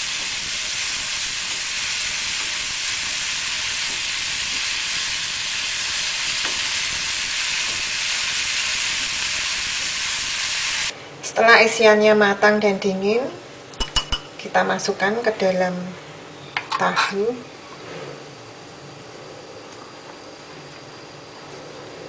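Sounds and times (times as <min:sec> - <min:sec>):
vegetables sizzling in a frying pan: 0:00.0 - 0:10.9.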